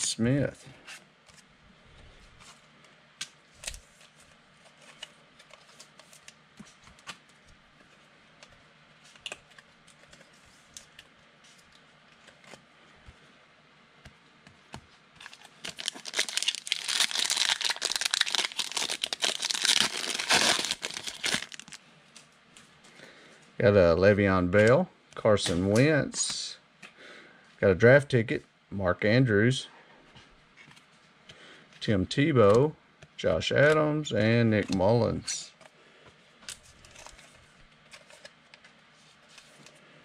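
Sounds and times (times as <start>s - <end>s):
foil wrapper crinkling and tearing: 15.2s - 21.8s.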